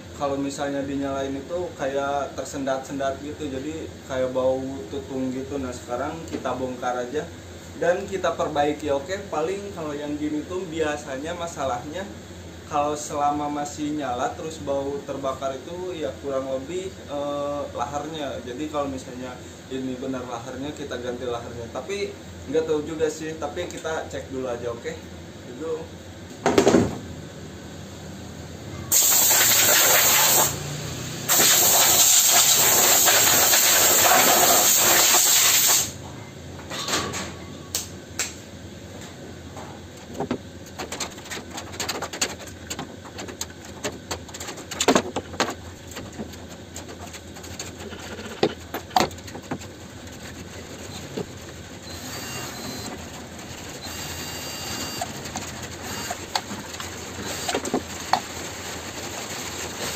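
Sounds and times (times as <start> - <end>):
compressed air blow gun blasting: 28.9 - 30.6, 31.3 - 36.0.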